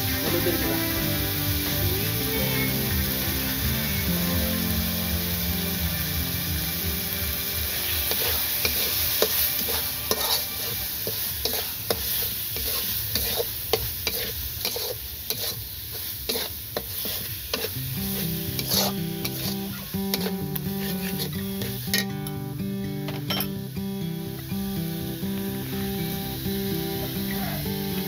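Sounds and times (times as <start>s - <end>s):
meat sizzling in a wok: 0.0s - 28.0s
spatula scraping a wok: 7.4s - 22.3s.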